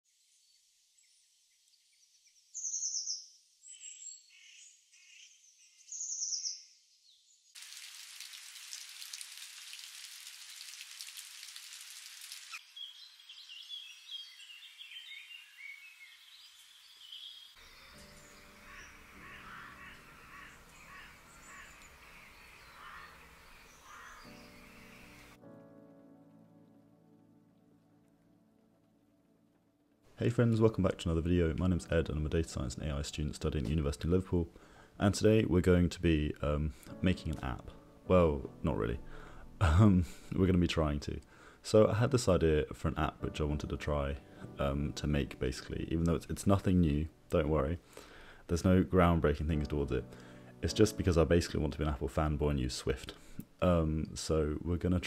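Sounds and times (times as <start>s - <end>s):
fountain spray falling into pond: 7.6s - 12.6s
birds calling: 12.5s - 25.4s
soft lo-fi music: 17.8s - 22.2s, 23.9s - 47.9s, 48.5s - 55.0s.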